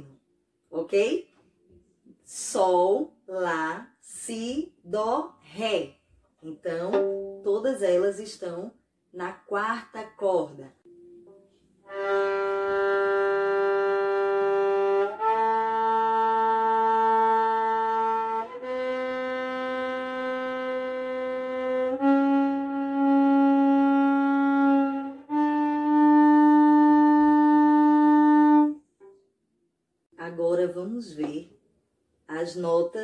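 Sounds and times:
violin bowing a rising scale: 11.3 - 29.2.

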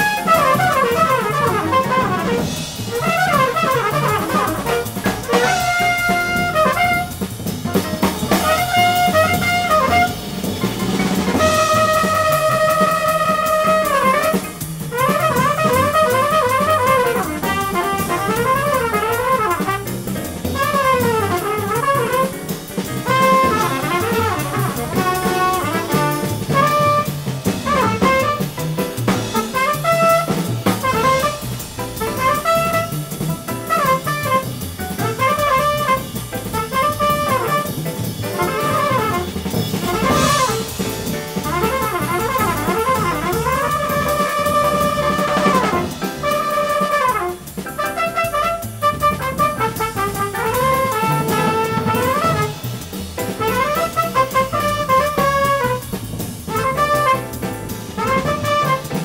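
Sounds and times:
drum kit and band accompaniment: 0.0 - 59.0
trumpet jazz solo: 0.0 - 59.0.

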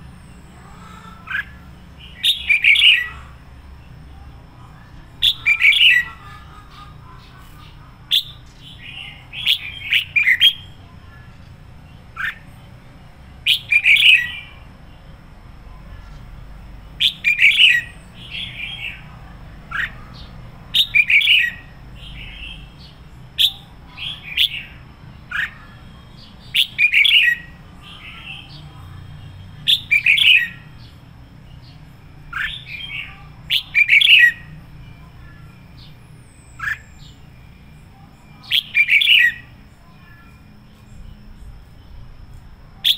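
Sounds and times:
bird singing whistled phrases: 1.3 - 3.2, 13.4 - 14.6, 17.0 - 19.1, 20.8 - 28.5, 29.6 - 31.0, 32.3 - 34.6, 35.8 - 39.5.

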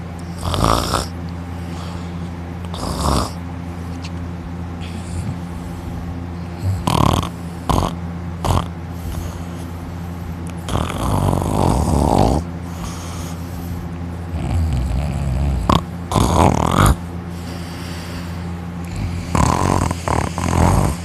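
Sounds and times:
steady low hum: 0.0 - 21.0
man snoring and snorting: 0.3 - 1.2, 2.6 - 3.4, 6.5 - 9.5, 10.6 - 13.2, 14.3 - 17.6, 18.8 - 21.0.

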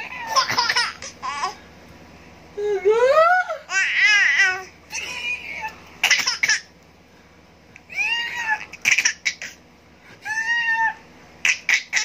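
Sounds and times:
baby laughing and squealing: 0.0 - 1.6, 7.9 - 9.6, 10.2 - 12.0.

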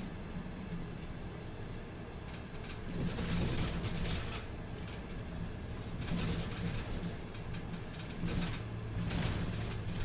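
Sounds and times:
bus engine humming: 0.0 - 10.0
rattle of loose interior fittings: 2.1 - 10.0.

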